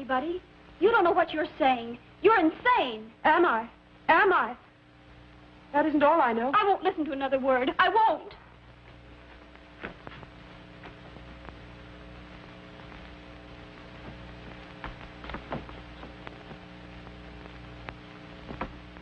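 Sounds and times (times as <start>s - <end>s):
film soundtrack hum and hiss: 0.0s - 19.0s
faint clicks: 14.0s - 18.9s.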